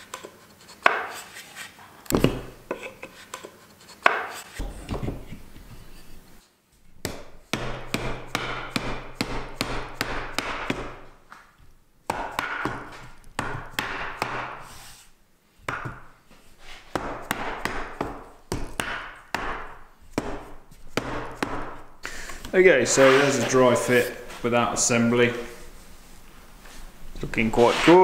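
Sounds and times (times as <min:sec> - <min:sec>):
mallet knocking wood: 0:07.0 - 0:11.0, 0:12.1 - 0:14.6, 0:15.7 - 0:16.0, 0:16.9 - 0:21.8.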